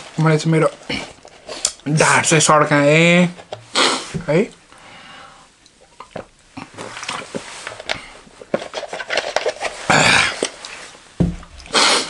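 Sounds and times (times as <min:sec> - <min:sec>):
man gulping from plastic bottle: 0:05.7 - 0:08.5, 0:09.7 - 0:12.0.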